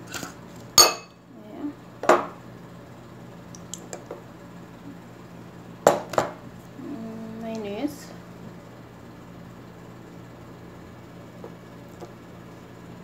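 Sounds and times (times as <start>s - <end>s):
dishes clinking: 0.1s - 1.2s.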